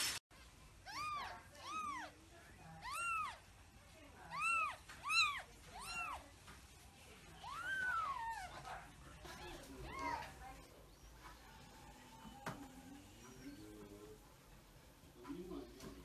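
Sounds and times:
kitten mewing: 0:00.8 - 0:02.2, 0:02.8 - 0:03.4, 0:04.3 - 0:06.2.

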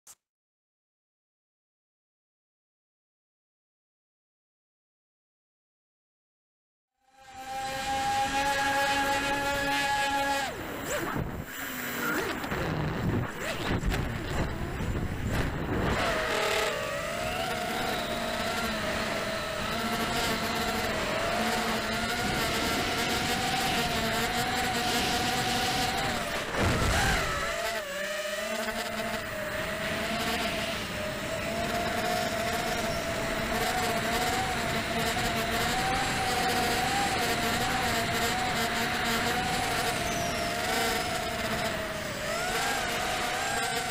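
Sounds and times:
quadcopter propellers whining: 0:07.0 - 0:43.9
wind rush on microphone: 0:10.7 - 0:18.1, 0:21.9 - 0:27.6.

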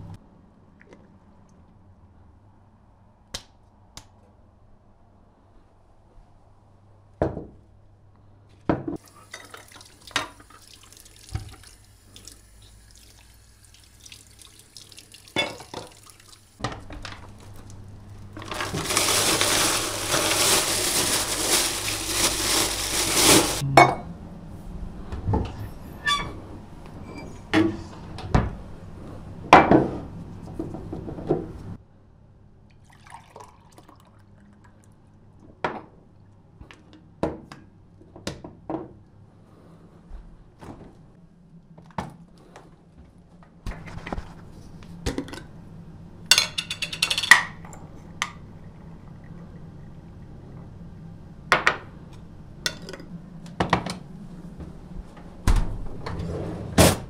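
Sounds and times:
kitchen tap running: 0:09.0 - 0:16.6.

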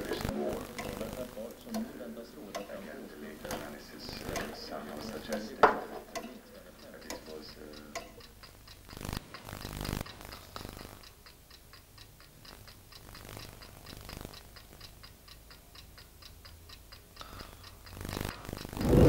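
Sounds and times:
mechanical clock ticking: 0:00.0 - 0:19.0
low hum: 0:18.8 - 0:19.0.

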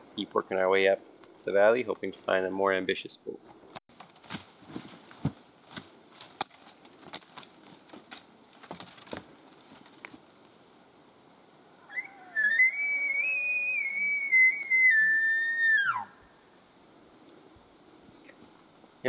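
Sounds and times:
footsteps crunching in dry brush: 0:03.4 - 0:10.8
elk bugling: 0:11.8 - 0:16.3.

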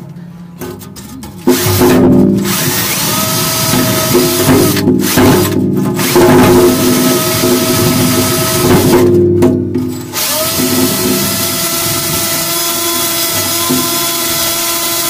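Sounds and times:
drill wire brush scrubbing metal: 0:01.4 - 0:09.0, 0:10.1 - 0:15.0.

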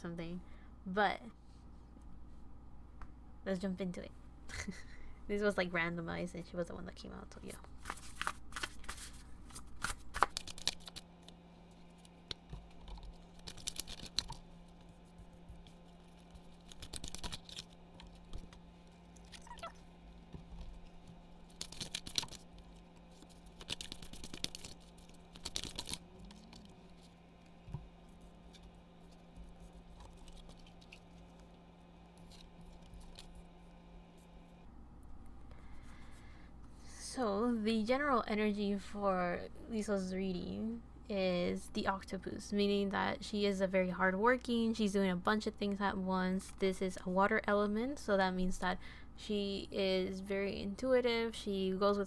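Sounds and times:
faint steady hum: 0:00.0 - 0:52.0
cards being shuffled: 0:07.6 - 0:19.7, 0:20.4 - 0:31.5, 0:32.1 - 0:33.5.

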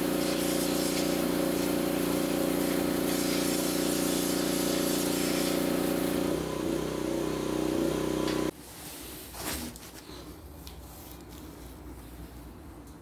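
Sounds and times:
water spray hissing: 0:00.0 - 0:06.4
pressure washer motor hum: 0:00.0 - 0:08.5.

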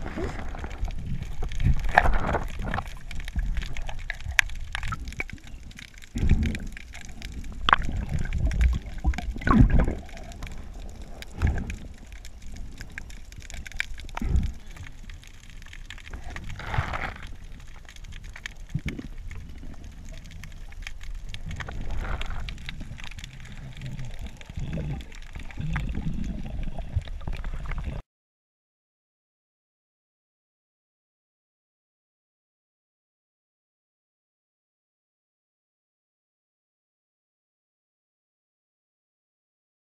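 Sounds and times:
water sloshing underwater: 0:00.0 - 0:28.0.

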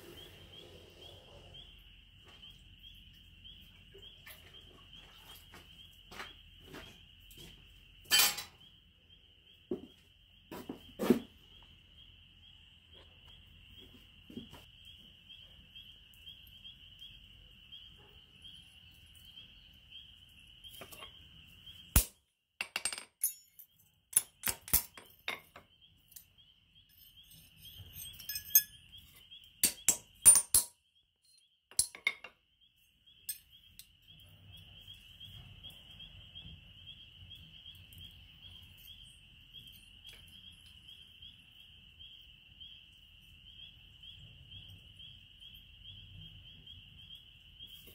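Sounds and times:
insects trilling: 0:00.0 - 0:22.2, 0:23.9 - 0:30.3, 0:32.5 - 0:47.9
metal tools clinking on anvil: 0:08.1 - 0:08.6, 0:22.0 - 0:32.4.

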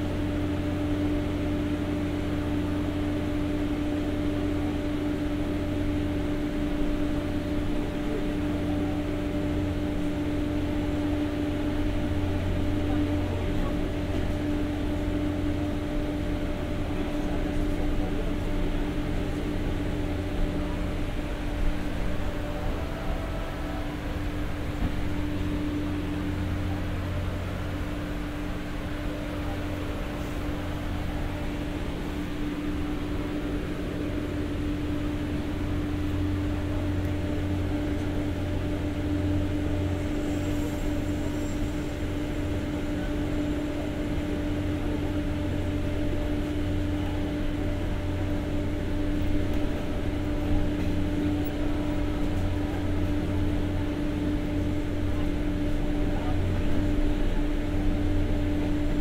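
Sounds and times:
generator droning: 0:00.0 - 0:59.0
train running noise: 0:00.0 - 0:59.0.

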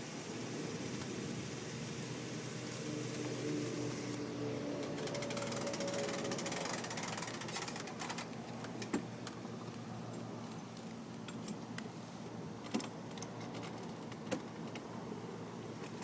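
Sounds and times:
metallic clicks and rattles: 0:04.8 - 0:09.4.

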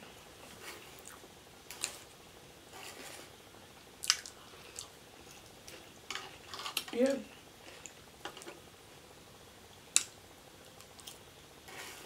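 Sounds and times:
soft chewing: 0:00.4 - 0:02.1, 0:04.0 - 0:06.5.

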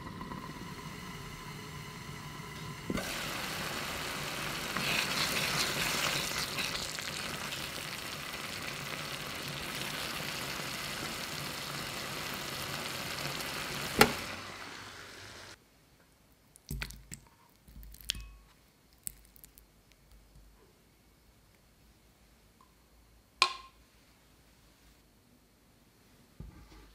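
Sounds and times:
sauce sizzling and bubbling: 0:00.0 - 0:15.6.

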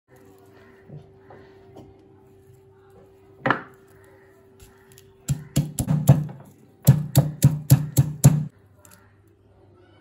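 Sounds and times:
pestle pounding in stone mortar: 0:05.3 - 0:08.5.

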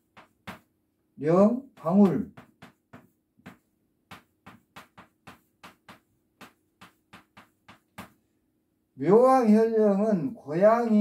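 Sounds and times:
chalk tapping on chalkboard: 0:00.0 - 0:08.3.

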